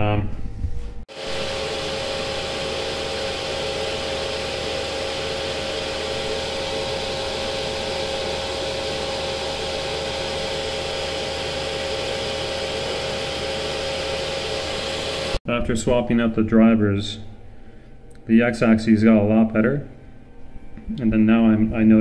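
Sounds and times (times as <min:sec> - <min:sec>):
machine running with hiss and hum: 0:01.1 - 0:15.4.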